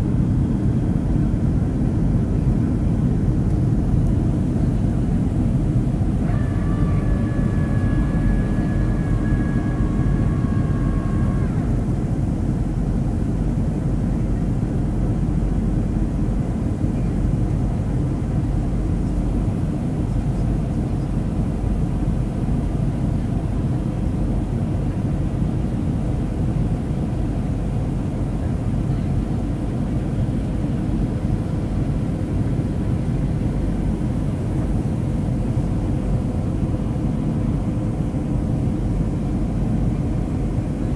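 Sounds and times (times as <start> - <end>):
airplane cabin engine roar: 0.0 - 40.9
thin high whine: 5.9 - 12.0.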